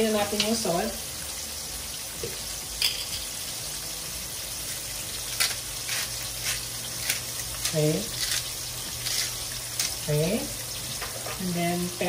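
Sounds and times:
shrimp sizzling in a pan: 0.0s - 12.0s.

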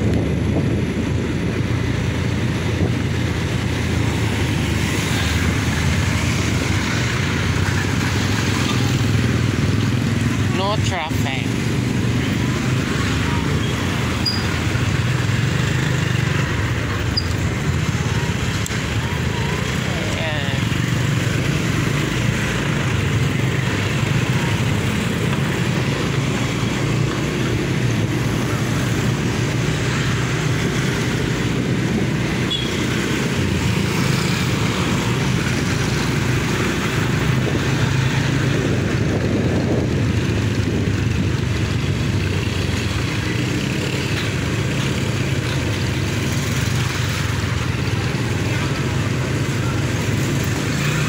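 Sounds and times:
motor scooter running: 0.0s - 51.0s
road traffic: 0.0s - 51.0s.

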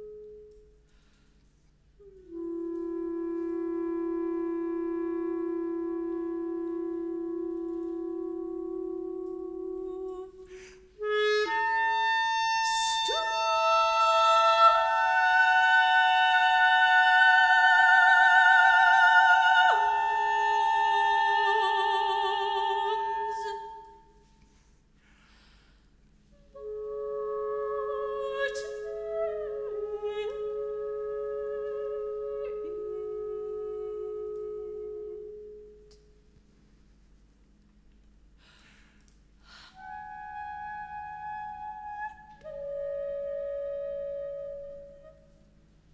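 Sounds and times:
clarinet holding long notes: 0.0s - 1.0s, 2.0s - 24.3s, 26.2s - 36.4s, 39.5s - 45.8s
soprano voice singing with vibrato: 11.1s - 24.0s, 27.6s - 30.8s.

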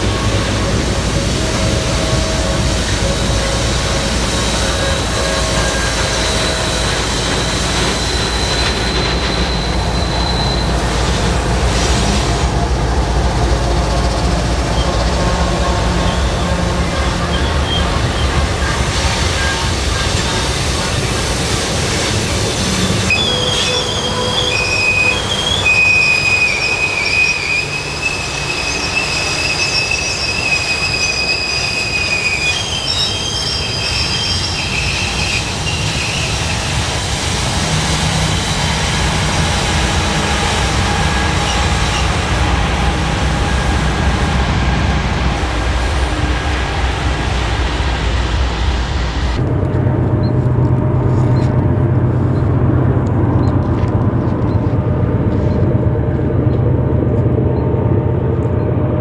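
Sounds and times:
train wheels squealing: 0.0s - 12.4s, 13.3s - 37.0s, 37.9s - 44.7s
rumble of passing train cars: 0.0s - 59.0s.

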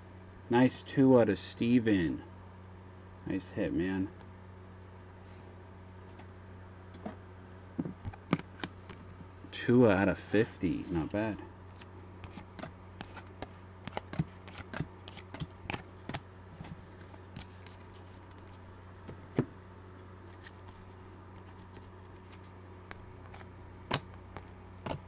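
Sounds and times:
steady low hum: 0.0s - 25.0s
cards clicking and snapping: 11.8s - 16.2s.

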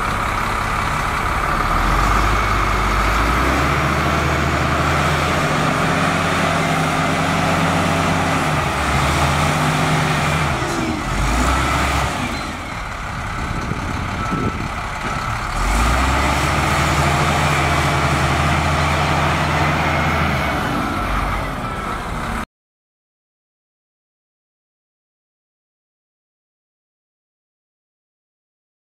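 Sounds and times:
wheel loader diesel engine: 0.0s - 22.5s.

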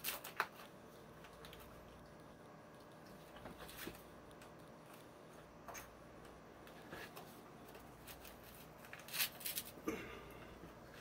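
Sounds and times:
rustling plastic and insulation: 0.0s - 2.0s, 3.0s - 9.8s.

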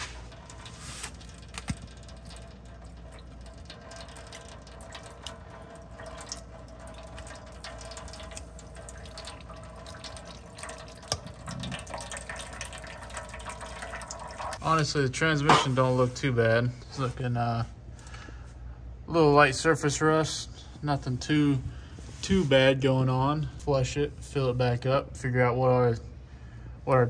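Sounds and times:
liquid trickling and dripping: 0.0s - 15.0s
steady low hum: 0.0s - 27.0s.

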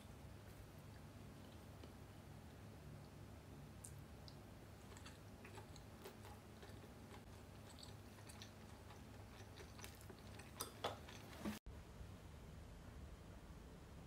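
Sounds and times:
faint chewing of food: 0.4s - 3.2s, 3.8s - 11.6s.

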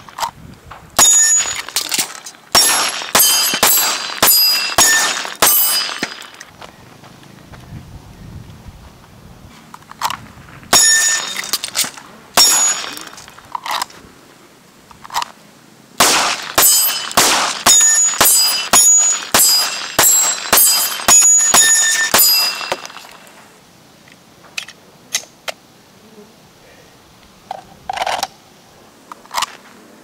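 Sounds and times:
handgun shots: 1.0s - 6.4s, 16.0s - 23.1s.

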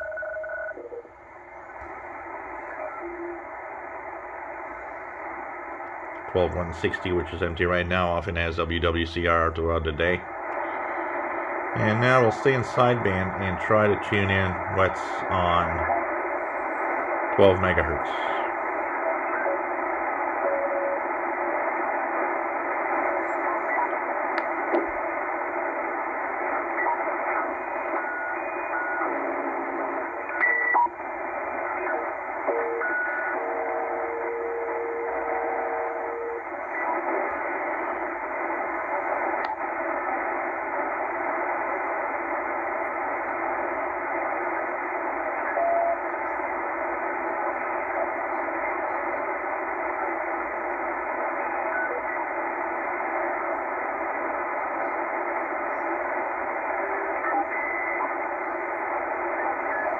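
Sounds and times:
radio static hiss: 0.7s - 59.9s
radio whistle tones: 25.7s - 37.8s, 44.1s - 53.3s, 55.2s - 59.9s.

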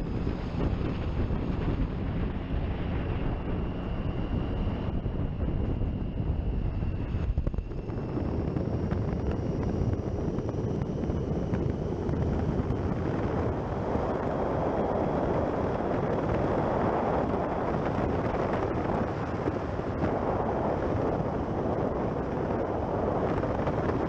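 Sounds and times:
wind rush over microphone: 0.0s - 24.0s.

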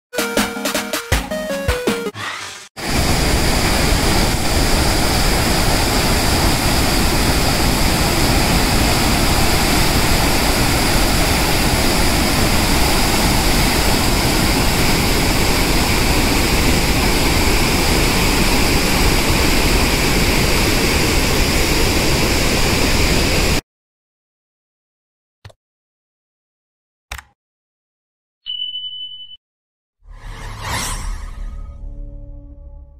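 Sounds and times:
waterfall rushing: 2.8s - 23.6s.

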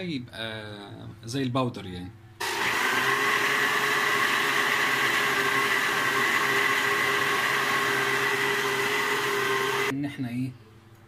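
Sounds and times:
blender whining: 2.4s - 9.9s.

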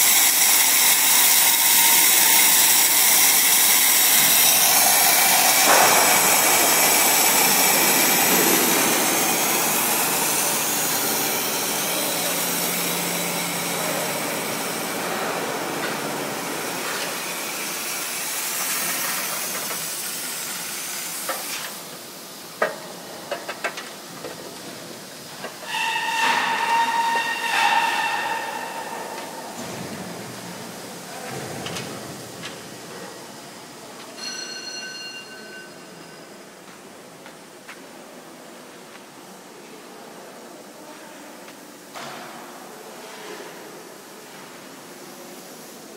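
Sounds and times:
machine hissing: 0.0s - 22.5s.

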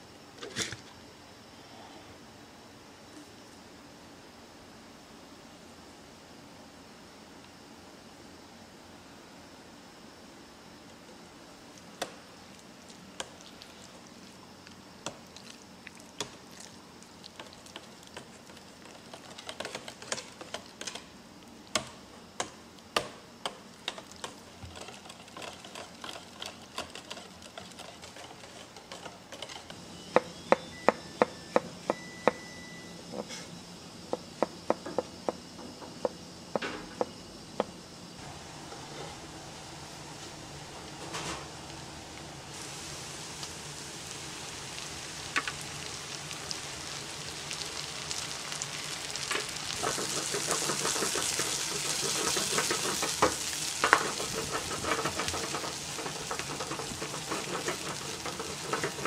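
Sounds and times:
whisk stirring thick sauce: 24.2s - 29.6s, 49.8s - 59.0s.

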